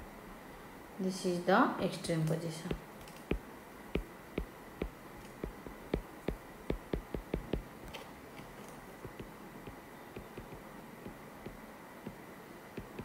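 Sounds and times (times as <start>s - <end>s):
stylus tapping on glass screen: 4.0s - 7.7s, 9.0s - 11.6s, 12.8s - 13.0s.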